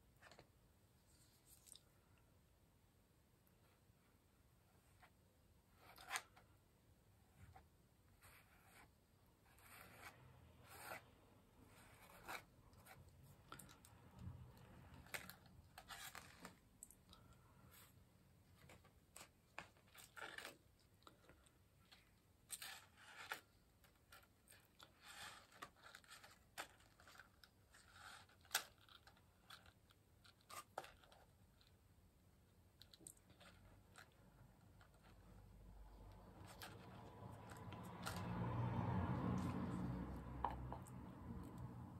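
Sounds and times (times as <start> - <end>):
palette knife scraping paper: 5.7 - 6.5, 7.3 - 16.6, 18.6 - 31.4.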